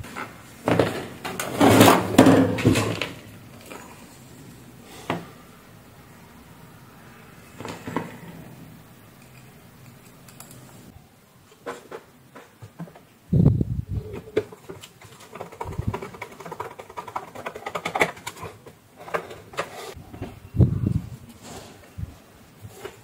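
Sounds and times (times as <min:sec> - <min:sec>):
screwdriver and screws clicking: 0:09.1 - 0:10.8
quick ticks and clatter: 0:14.5 - 0:18.6.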